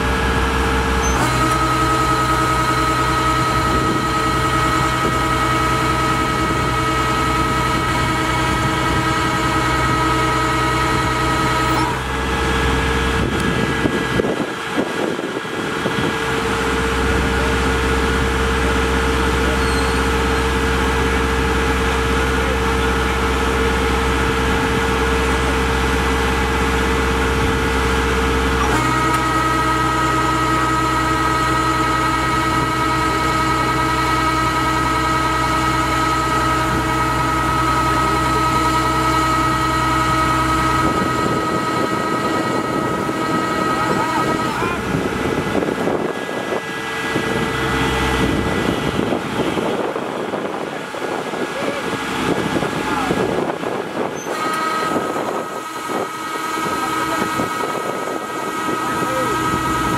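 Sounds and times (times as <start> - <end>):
constant high whine: 0.0 - 59.9
diesel engine running steadily: 0.0 - 59.9.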